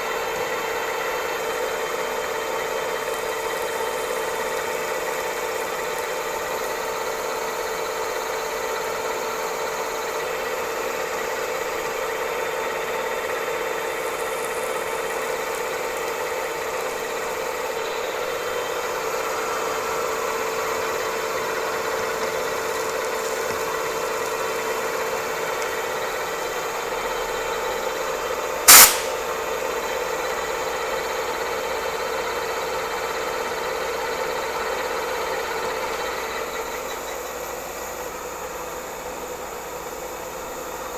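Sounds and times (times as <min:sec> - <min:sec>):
sharp crack: 0:28.7 - 0:29.3.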